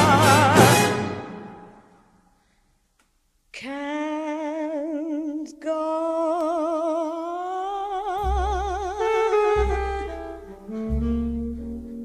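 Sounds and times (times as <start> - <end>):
woman singing with vibrato: 0.0 - 1.2, 3.6 - 10.4
deep bass notes: 8.2 - 12.0
saxophone and brass: 8.8 - 12.0.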